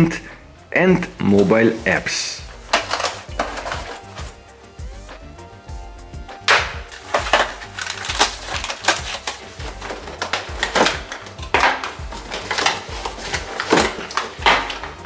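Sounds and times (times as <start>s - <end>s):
quiet background music: 0.0s - 15.0s
cardboard rustling and creasing: 1.0s - 4.4s, 6.9s - 15.0s.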